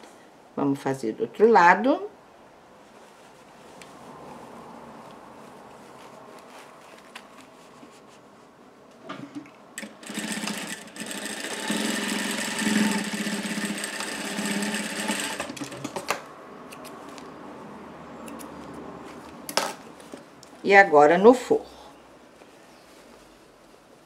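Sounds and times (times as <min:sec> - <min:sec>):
sewing machine sewing: 0:09.8 - 0:16.0.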